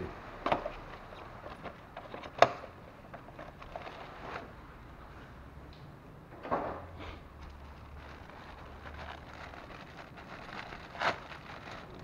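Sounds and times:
plastic packaging rustle: 3.2s - 4.5s, 7.4s - 12.0s.

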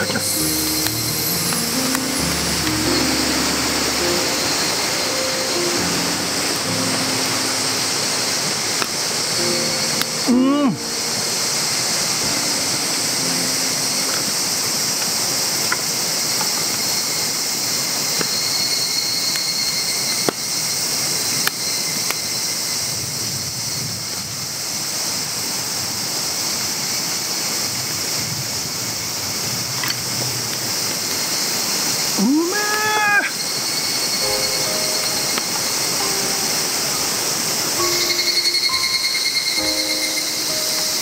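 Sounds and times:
campfire crackling and popping: 0.0s - 5.0s, 5.6s - 11.2s, 11.8s - 18.5s, 19.2s - 20.4s, 21.3s - 22.2s
high-pitched hiss: 0.0s - 41.0s.

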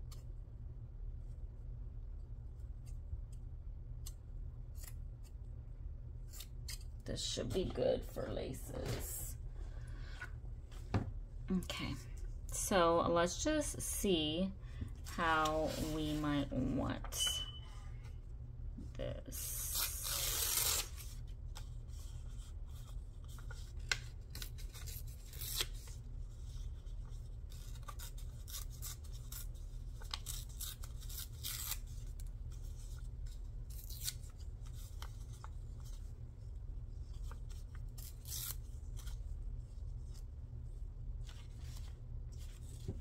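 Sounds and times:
steady low hum: 0.0s - 43.0s
scissors snipping paper: 27.5s - 32.8s, 33.6s - 34.3s, 37.8s - 39.2s.

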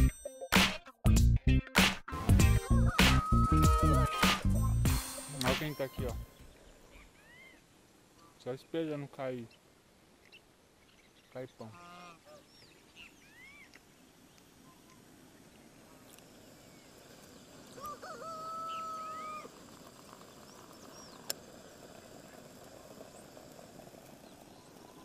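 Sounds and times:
rooster crowing: 2.9s - 4.2s, 17.7s - 19.6s
small birds chirping: 5.6s - 25.0s.

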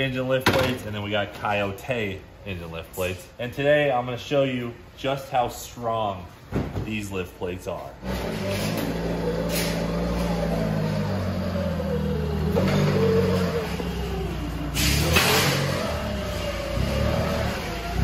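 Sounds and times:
forklift engine running: 8.0s - 18.0s.

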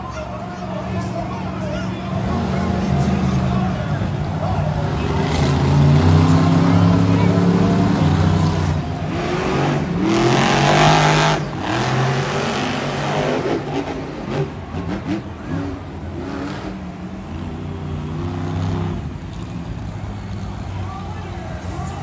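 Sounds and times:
monster truck engines revving: 0.0s - 22.0s.

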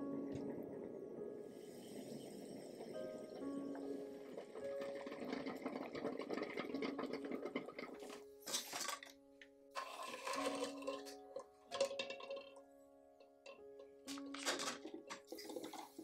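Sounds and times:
soft background music: 0.0s - 16.0s
water boiling and bubbling: 0.0s - 16.0s
water splashing: 9.8s - 12.5s.

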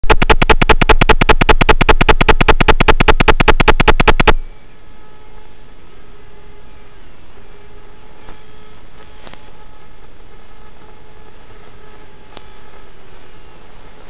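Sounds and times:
loud harsh pulsing buzz: 0.0s - 14.0s
low steady hiss: 4.3s - 14.0s.

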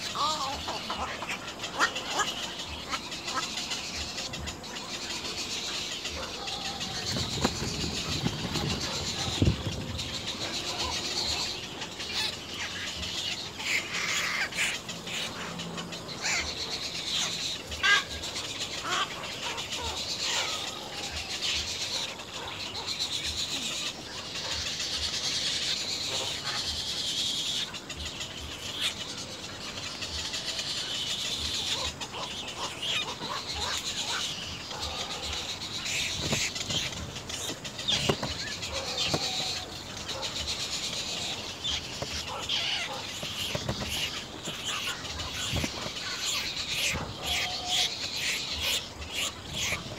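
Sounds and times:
egret chicks calling: 0.0s - 49.9s.

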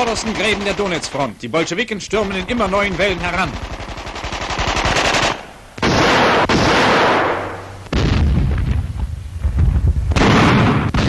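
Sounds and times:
heavy low-pitched gunfire: 0.0s - 1.3s, 2.2s - 11.0s
rapid machine-gun fire: 0.0s - 1.3s, 2.2s - 8.4s, 10.2s - 11.0s
loud sustained blast: 4.8s - 11.0s.

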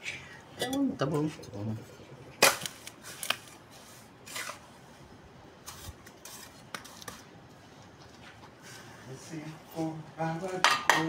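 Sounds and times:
trowel scraping mortar: 2.8s - 4.7s, 5.6s - 7.2s.

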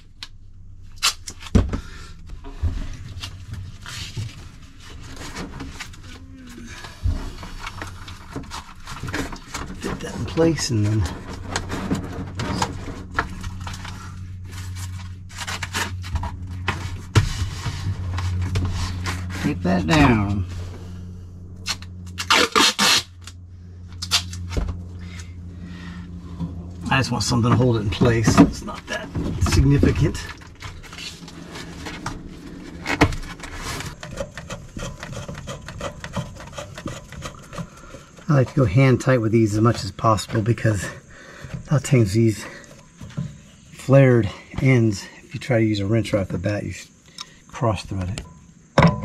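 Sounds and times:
steady low hum: 0.0s - 49.0s
hands scraping and rubbing pipe: 2.7s - 25.3s, 26.2s - 40.8s.

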